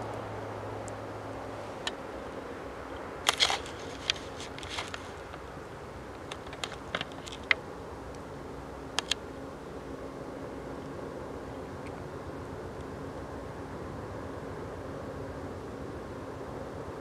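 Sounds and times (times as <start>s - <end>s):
faint steady hum: 0.0s - 17.0s
sharp clicks and crackles: 2.9s - 5.5s, 6.1s - 8.2s, 8.9s - 9.2s.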